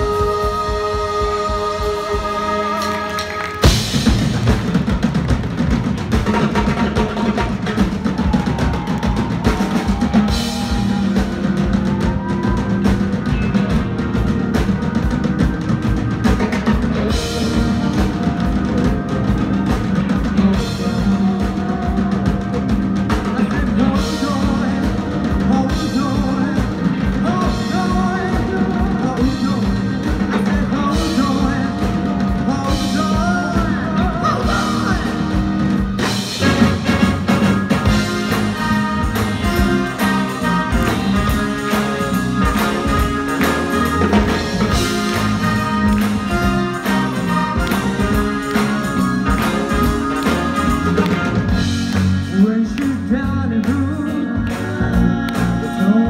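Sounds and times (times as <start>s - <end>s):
person singing: 0.0s - 3.4s, 17.0s - 35.9s, 52.1s - 56.0s
horn section: 0.0s - 5.0s, 6.1s - 52.8s
drum kit: 0.0s - 56.0s
keyboards: 0.0s - 56.0s.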